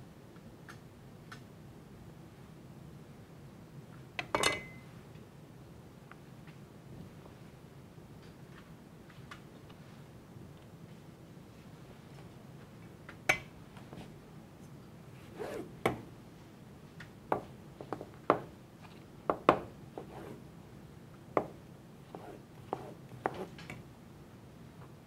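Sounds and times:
low room hum: 0:00.0 - 0:25.0.

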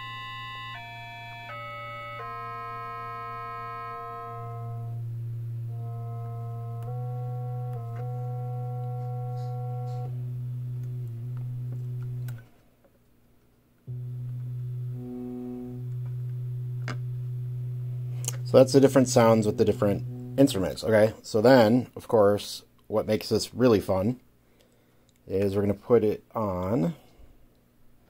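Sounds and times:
steady low tone: 0:00.0 - 0:12.4, 0:13.9 - 0:21.1
synthesizer playing held notes: 0:00.0 - 0:12.4, 0:13.9 - 0:20.9.

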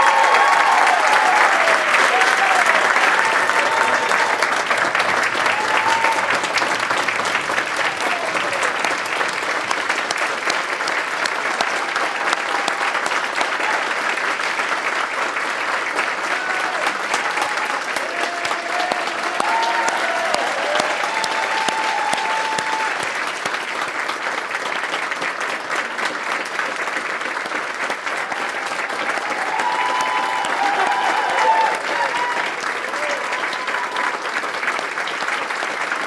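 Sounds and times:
audience applauding: 0:00.0 - 0:36.0.

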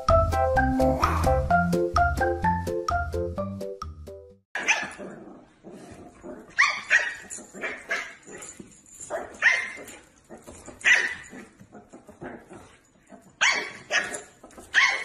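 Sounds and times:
puppy yapping: 0:04.6 - 0:05.1, 0:10.7 - 0:12.5, 0:13.3 - 0:15.0.

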